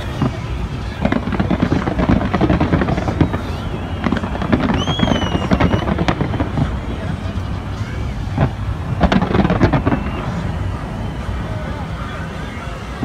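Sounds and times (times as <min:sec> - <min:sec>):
firework whistle: 0:00.0 - 0:13.0
fireworks bangs and crackles: 0:00.0 - 0:13.0
low rumble: 0:00.0 - 0:13.0.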